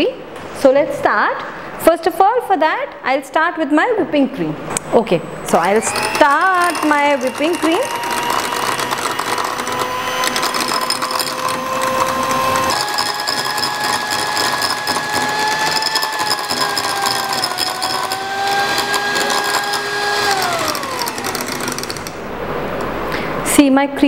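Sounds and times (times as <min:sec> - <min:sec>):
electric hand mixer motor whine: 0:05.5 - 0:23.0
beaters clattering against glass: 0:06.2 - 0:19.9.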